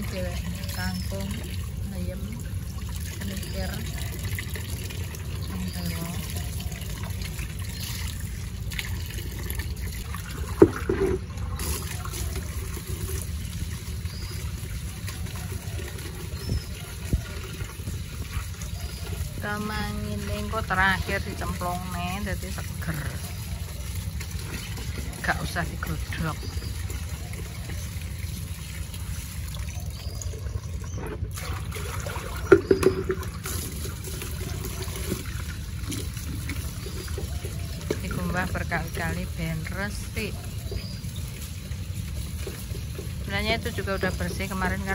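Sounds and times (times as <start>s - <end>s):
tap water pouring into bucket: 0.0s - 44.9s
water splashing and sloshing: 0.0s - 44.9s
bucket knock and splash: 8.7s - 13.2s, 31.1s - 38.3s.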